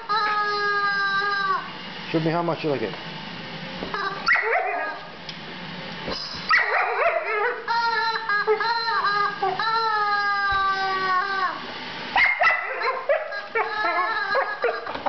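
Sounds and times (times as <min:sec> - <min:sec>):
rubber chicken toy squawking: 0:00.0 - 0:01.7, 0:04.0 - 0:04.9, 0:06.2 - 0:11.6, 0:12.4 - 0:15.0.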